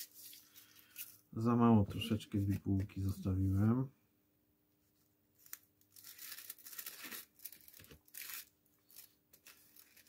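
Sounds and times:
rolling paper tearing and rustling: 0:05.4 - 0:10.0.

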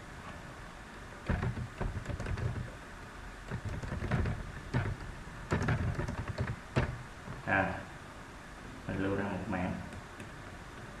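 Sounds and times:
dull thuds through desk: 0:01.3 - 0:02.7
keyboard typing: 0:01.3 - 0:02.7, 0:03.5 - 0:07.0.

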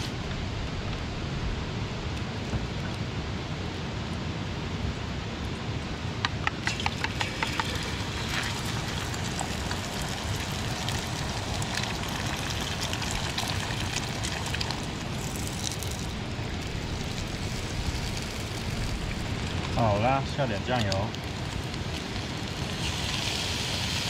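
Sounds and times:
food sizzling in a pan: 0:06.6 - 0:24.0.

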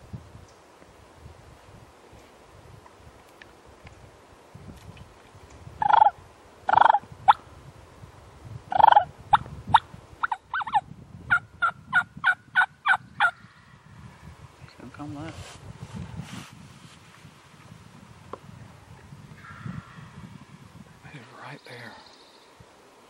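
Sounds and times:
turkey gobbling: 0:05.8 - 0:06.1, 0:06.7 - 0:07.0, 0:08.7 - 0:09.1
turkey yelping calls: 0:05.8 - 0:06.1, 0:06.7 - 0:07.0, 0:08.7 - 0:09.1, 0:10.2 - 0:13.4.

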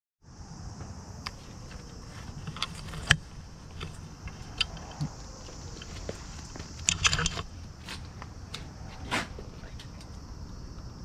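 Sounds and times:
low outdoor rumble: 0:00.2 - 0:11.0
footsteps: 0:00.8 - 0:10.1.

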